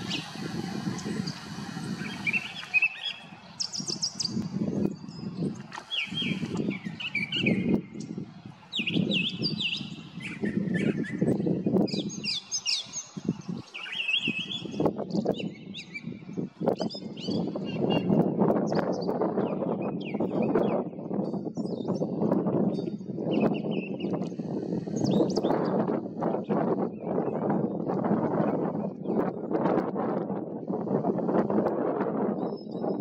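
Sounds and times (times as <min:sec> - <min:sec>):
bird singing: 0:00.0 - 0:24.2.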